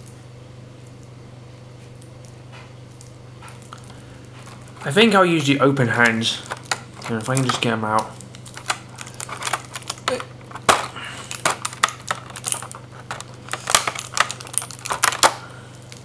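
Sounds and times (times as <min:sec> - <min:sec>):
plastic blister tray clicking: 0:03.7 - 0:15.4.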